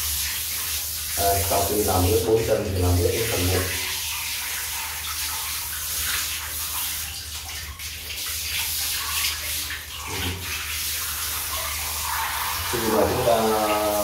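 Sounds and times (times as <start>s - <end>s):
hose water spraying and splashing: 0.0s - 14.0s.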